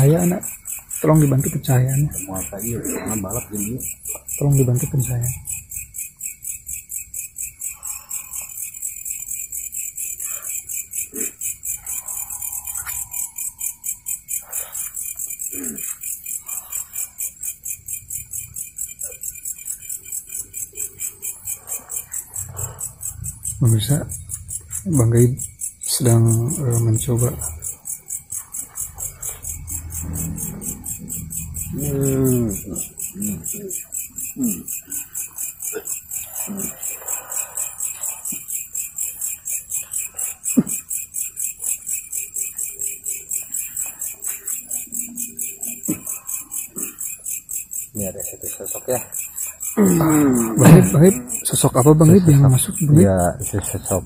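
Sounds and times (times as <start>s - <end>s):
insects chirping: 0.0s - 54.0s
faint low murmuring: 22.4s - 27.6s, 29.1s - 34.7s
short low vocal sound: 30.2s - 33.8s.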